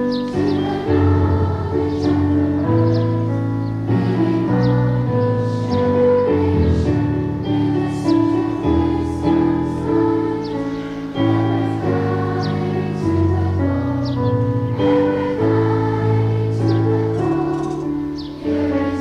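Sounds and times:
students singing together: 0.0 - 19.0.

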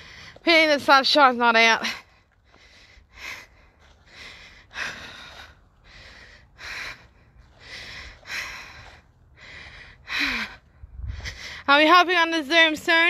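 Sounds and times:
woman breathing hard: 0.0 - 0.4, 1.8 - 11.7
wind rumble on microphone: 10.7 - 11.6.

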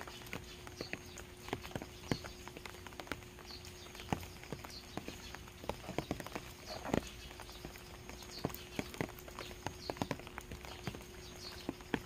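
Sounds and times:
bird chirping: 0.0 - 12.0
rain drops tapping on ground: 0.0 - 12.0.

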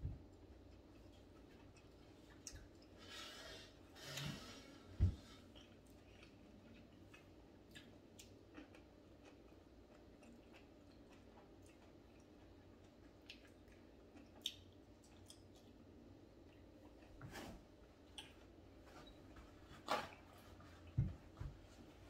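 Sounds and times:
person chewing: 5.3 - 17.1.

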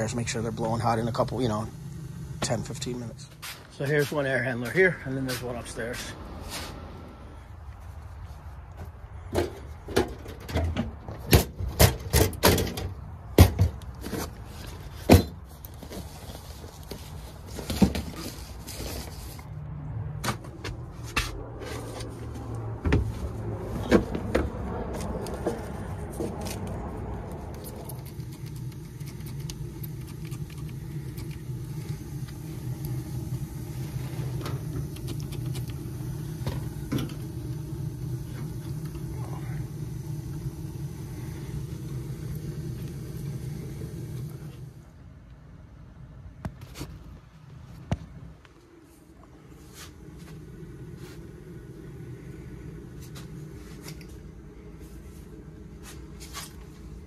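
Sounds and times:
steady low hum: 0.0 - 8.0, 20.5 - 46.6, 47.8 - 57.0.

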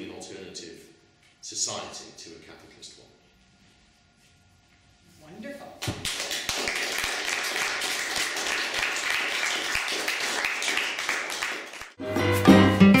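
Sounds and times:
audience applause: 6.0 - 12.0.

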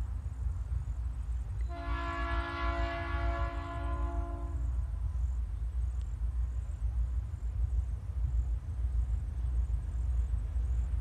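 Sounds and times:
low train rumble: 0.0 - 11.0
train horn chord blast: 1.7 - 4.6.

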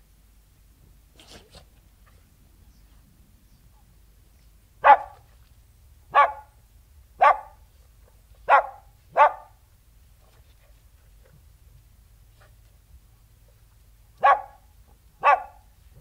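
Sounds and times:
dog barking: 4.8 - 5.2, 6.1 - 6.6, 7.2 - 7.6, 8.4 - 9.6, 14.2 - 15.7.

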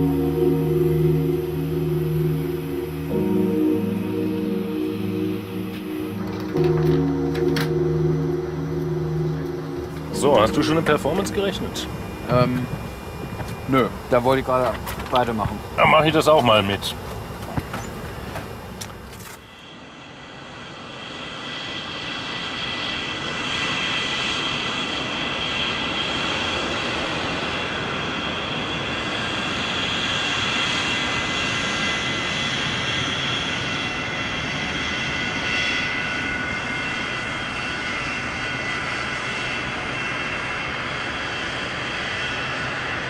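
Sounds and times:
jet engine whine and rumble: 0.0 - 43.0.

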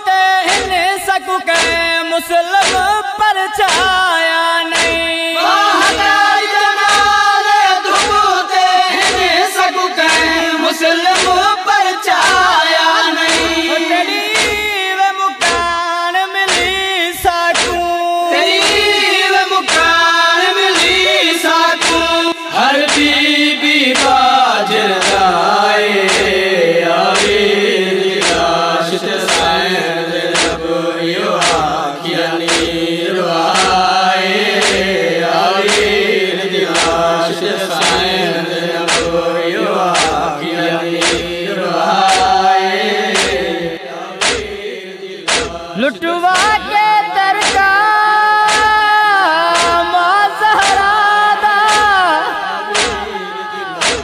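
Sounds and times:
palms striking chests: 0.5 - 0.9, 1.5 - 4.1, 4.7 - 7.3, 7.9 - 8.2, 9.0 - 9.4, 10.0 - 10.5, 11.1 - 11.5, 12.2 - 12.6, 13.2 - 20.1, 20.7 - 23.4, 25.0 - 25.3, 26.1 - 26.4, 27.2 - 27.4, 28.2 - 28.6, 29.2 - 29.6, 30.3 - 30.8, 31.4 - 31.8, 32.4 - 32.9, 34.6 - 34.9, 35.6 - 36.0, 36.7 - 37.1, 37.8 - 38.2, 38.8 - 39.2, 39.9 - 40.3, 41.0 - 41.4, 43.2 - 43.6, 44.2 - 44.7, 45.3 - 46.7, 47.4 - 47.7, 48.5 - 48.9, 49.5 - 49.9, 52.8 - 53.1, 53.8 - 54.0
voices chanting in unison: 4.8 - 14.8, 17.6 - 47.8, 48.4 - 54.0.

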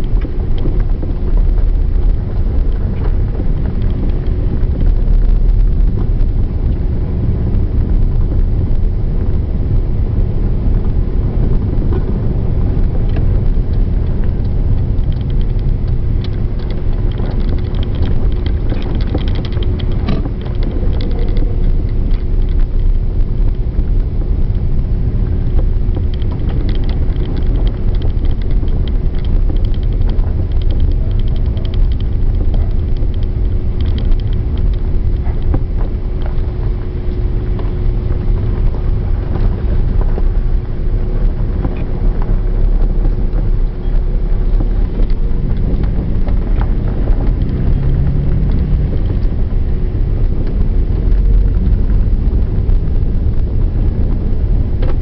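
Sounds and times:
light clicks and rattles: 0.0 - 6.2, 13.0 - 23.6, 25.6 - 49.5
car engine and tyres rumbling: 0.0 - 55.0.

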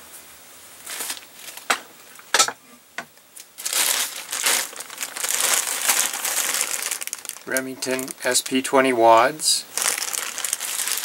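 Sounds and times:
plastic bag crinkling: 0.8 - 1.7, 3.4 - 11.0.

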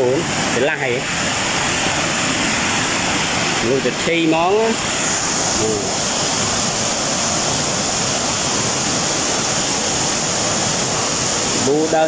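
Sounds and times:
river rushing over rapids: 0.0 - 12.0.

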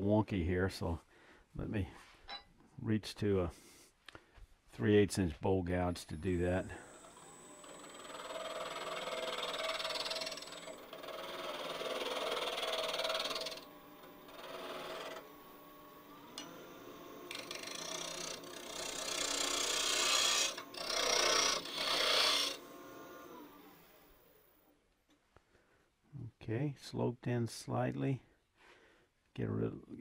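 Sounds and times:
faint steady lathe hum: 6.4 - 24.7
lathe gouge hissing scraping cut: 6.7 - 24.2.

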